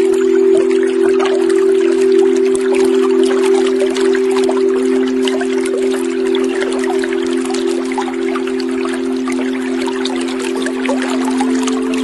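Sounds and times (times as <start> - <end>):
low droning meditation music: 0.0 - 12.0
trickling water: 0.0 - 12.0.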